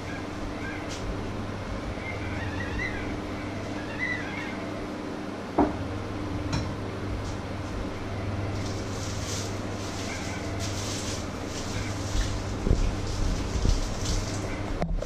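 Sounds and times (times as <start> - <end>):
steady low hum: 0.0 - 15.0
plastic mesh bag rustling: 8.5 - 14.8.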